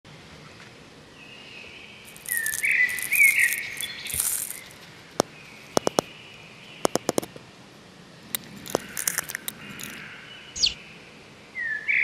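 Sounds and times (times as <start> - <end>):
birds chirping: 1.4 - 7.4, 8.2 - 11.0
insects trilling: 2.1 - 6.1
sharp clicks: 2.1 - 6.1, 6.8 - 7.4, 8.3 - 10.0.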